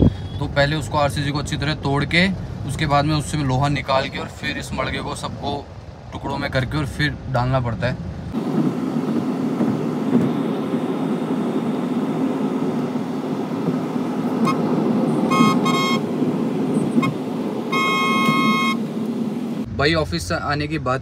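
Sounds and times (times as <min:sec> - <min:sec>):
road traffic: 0:00.0 - 0:21.0
vehicle horns honking: 0:14.4 - 0:16.2, 0:16.8 - 0:18.8.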